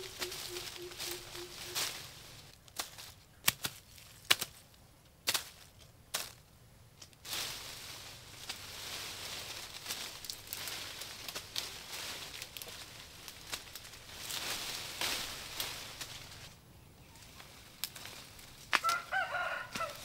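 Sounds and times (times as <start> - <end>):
leaves rustling: 0.0 - 20.0
stems snapping: 2.7 - 4.6, 7.0 - 16.5, 17.2 - 20.0.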